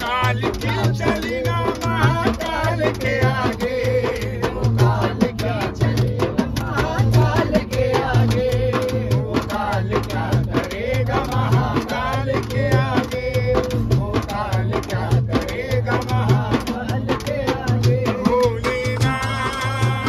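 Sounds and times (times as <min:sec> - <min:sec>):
hand drum beaten in fast rhythm: 0:00.0 - 0:20.0
man singing: 0:00.0 - 0:20.0
voices singing along: 0:00.0 - 0:20.0.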